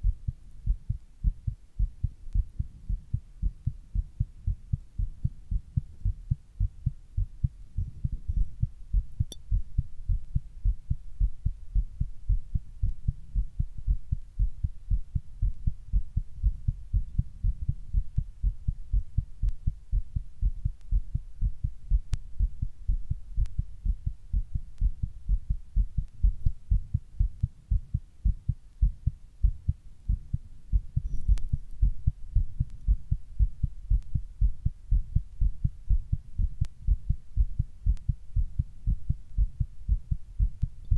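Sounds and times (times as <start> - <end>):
heart beating fast: 0.0 - 40.9
faint clicks: 31.0 - 31.9.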